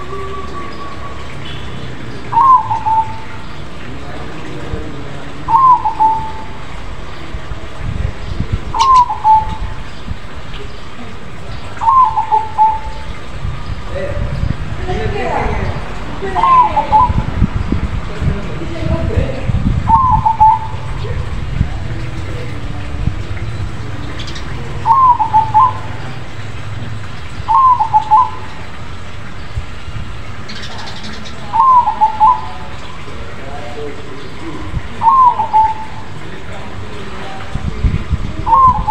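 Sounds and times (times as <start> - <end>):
dove cooing: 0.0 - 3.6, 4.2 - 6.8, 8.7 - 9.9, 11.7 - 13.2, 16.4 - 17.3, 19.9 - 21.3, 23.9 - 26.3, 27.4 - 28.7, 30.6 - 36.3, 38.3 - 38.9.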